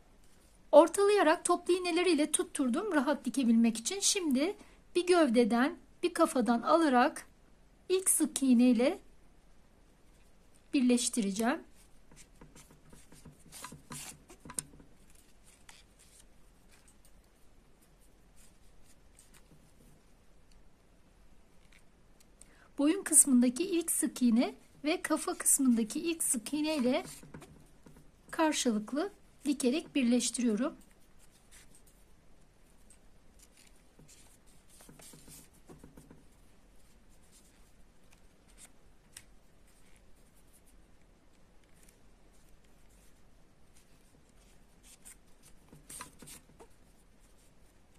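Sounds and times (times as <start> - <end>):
soft handling of stuffed toy: 9.6 - 22.4, 23.0 - 47.9
yarn rustling through fabric: 9.9 - 20.4, 22.8 - 47.9
yarn rustling and scraping: 11.7 - 20.0.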